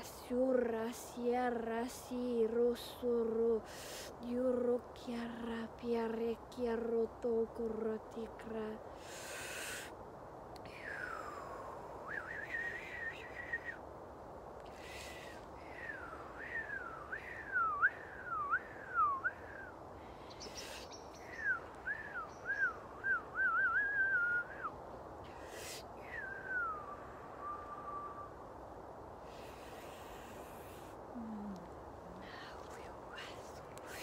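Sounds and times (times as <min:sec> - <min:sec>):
sharp breaths: 0:08.9 - 0:10.0
woman whistling a tune: 0:15.9 - 0:19.7, 0:21.4 - 0:24.7, 0:26.2 - 0:28.3.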